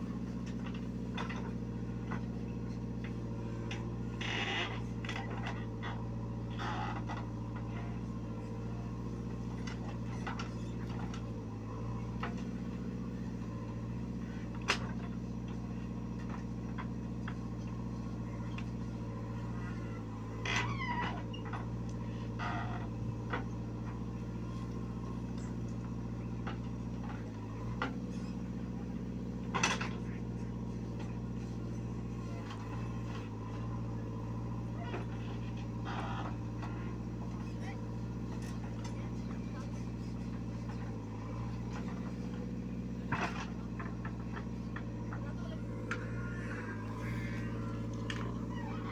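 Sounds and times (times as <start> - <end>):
backhoe digging soil: 0.0 - 48.9
diesel engine running: 0.0 - 48.9.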